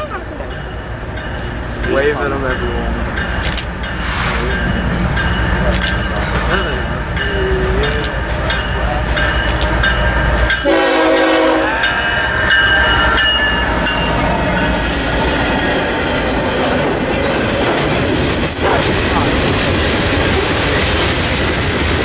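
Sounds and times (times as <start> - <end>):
diesel locomotive engine rumbling: 0.0 - 22.0
train horn blast: 10.6 - 13.2.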